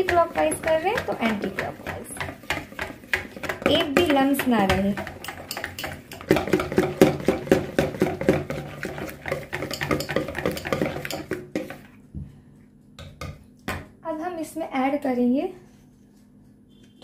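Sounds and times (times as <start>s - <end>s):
whisk beating batter: 0.0s - 11.9s.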